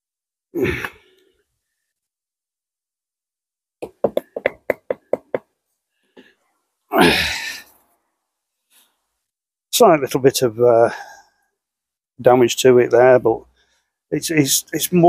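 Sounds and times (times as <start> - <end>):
sharp knocks on brick: 3.8 - 5.4.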